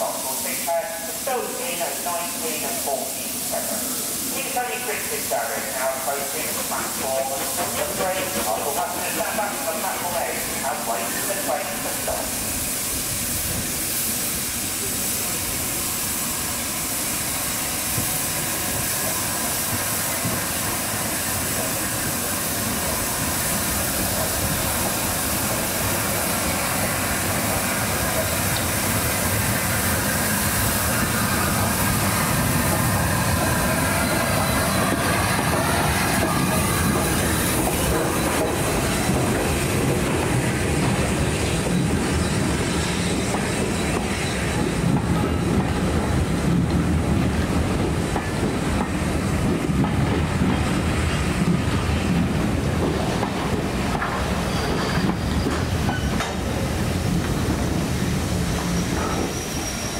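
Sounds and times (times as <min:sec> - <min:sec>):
steam hissing: 0:00.0 - 0:59.9
train rumble: 0:00.0 - 0:59.9
train wheels clicking over rail joints: 0:32.4 - 0:57.9.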